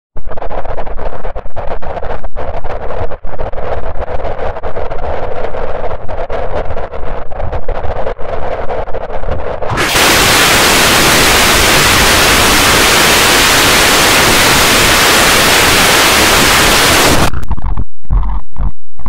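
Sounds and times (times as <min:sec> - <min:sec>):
stuttering bursts with low rumble: 0:00.2 - 0:19.0
static-like white noise hiss: 0:09.7 - 0:17.4.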